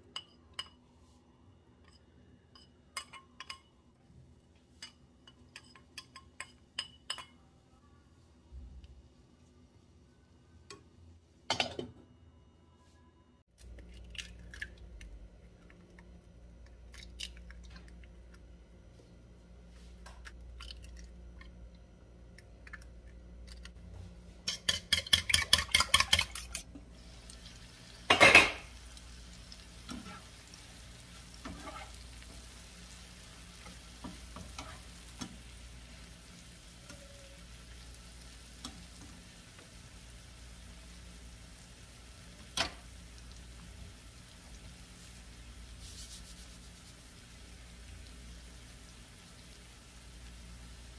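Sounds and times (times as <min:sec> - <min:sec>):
food sizzling in a pan: 0:26.7 - 0:50.9
utensil strokes against a dish: 0:45.7 - 0:47.2.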